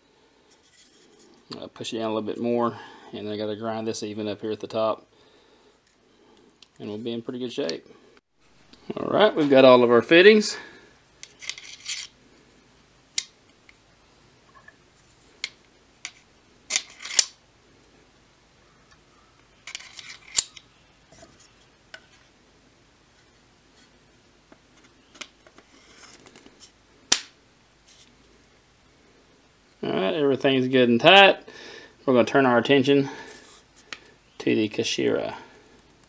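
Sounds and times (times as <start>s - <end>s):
brief scraping rubs: 0.5s - 1.4s, 24.8s - 26.8s.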